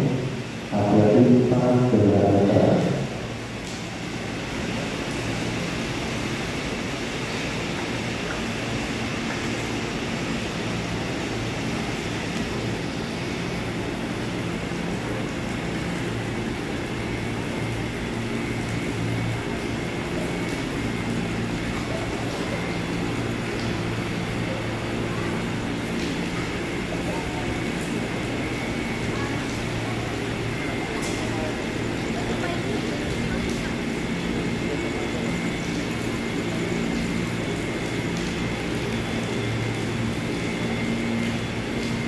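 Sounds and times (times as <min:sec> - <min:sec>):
electric trains humming: 0:00.0 - 0:42.0
murmur of voices: 0:19.2 - 0:41.0.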